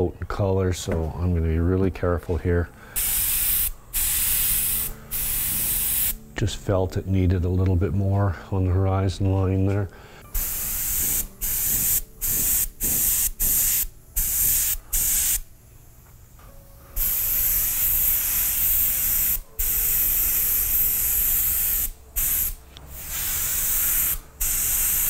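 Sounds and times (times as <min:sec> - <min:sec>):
airbrush spraying: 0:03.0 - 0:06.2, 0:10.3 - 0:15.5, 0:17.0 - 0:25.0.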